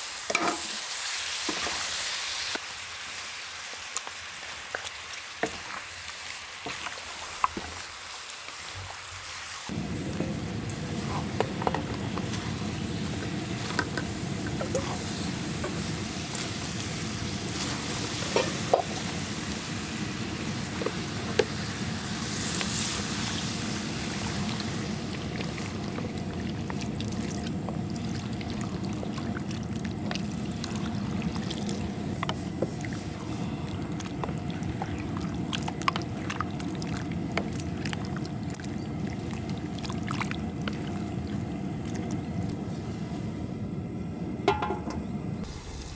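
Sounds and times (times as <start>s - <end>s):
steady low rumble: 9.7s - 18.2s.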